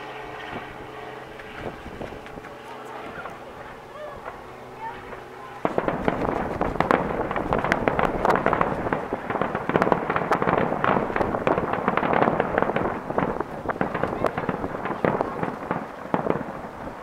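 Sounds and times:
fireworks crackling: 1.4 - 17.0
fireworks bursting: 4.2 - 17.0.

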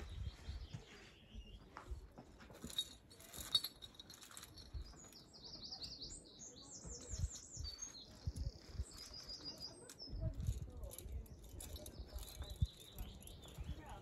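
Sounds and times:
wind buffeting microphone: 0.0 - 0.8, 6.9 - 14.0.

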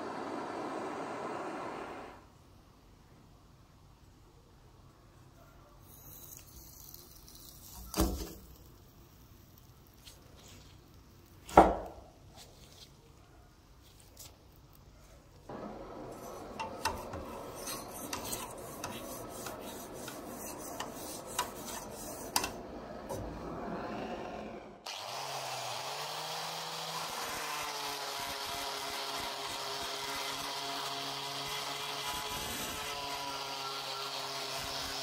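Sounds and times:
angle grinder on blade: 15.5 - 35.0
abrasive rubbing on steel blade: 16.1 - 22.6.

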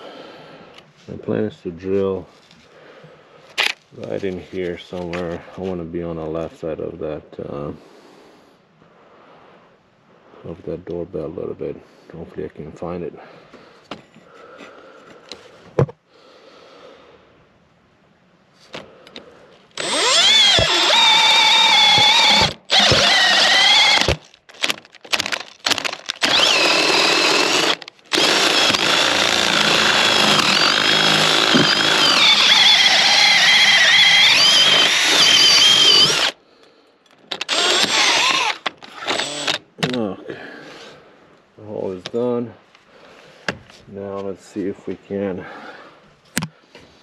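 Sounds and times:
power drill boring into wall: 19.8 - 36.4, 37.2 - 40.0.

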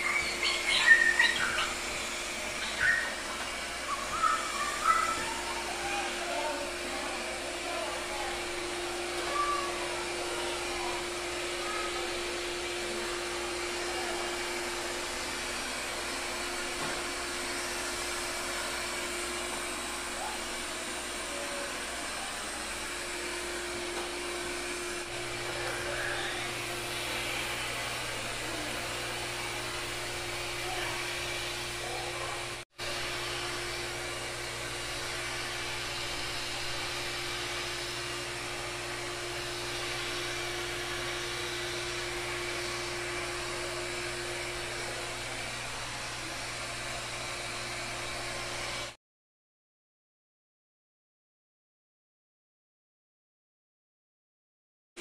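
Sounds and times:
robot vacuum suction fan whirring: 0.0 - 49.0.

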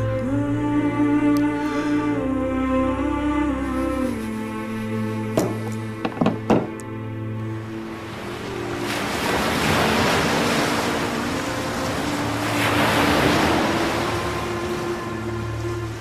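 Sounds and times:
surf washing onto sandy beach: 8.0 - 15.2.

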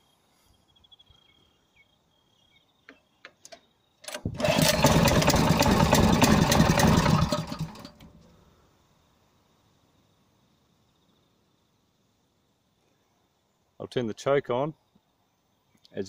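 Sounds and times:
petrol engine running: 4.1 - 8.2.

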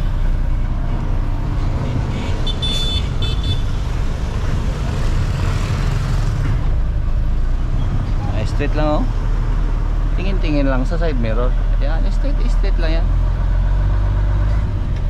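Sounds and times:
diesel truck engine rumbling: 0.0 - 15.0
truck horn beeps: 1.8 - 3.7.

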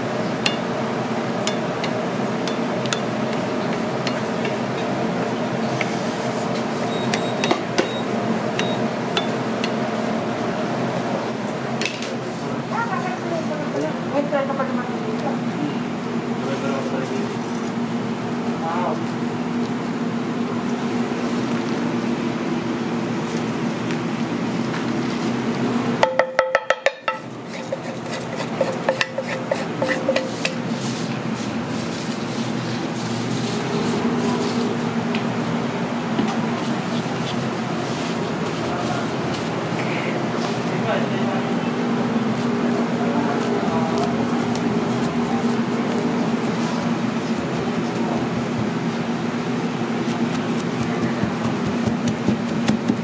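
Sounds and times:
low mechanical hum: 0.0 - 53.0
spatula knocking in metal pan: 26.0 - 27.2.

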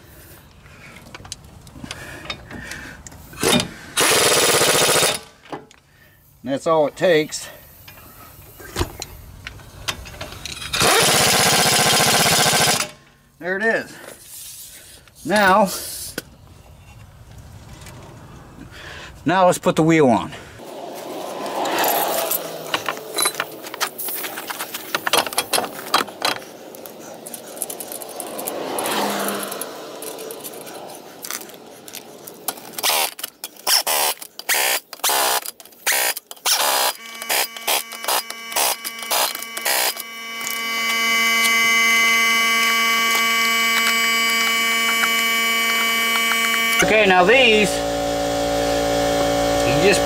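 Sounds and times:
impact wrench bursts: 3.3 - 5.3, 10.0 - 13.0, 32.7 - 50.0
metal scrapes and clicks: 21.5 - 41.6
steady hum: 36.6 - 50.0.

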